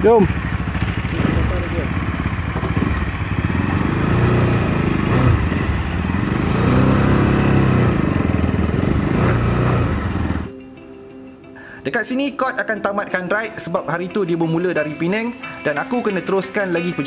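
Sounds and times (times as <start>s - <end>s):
motorcycle engine pulling away: 0.0s - 10.5s.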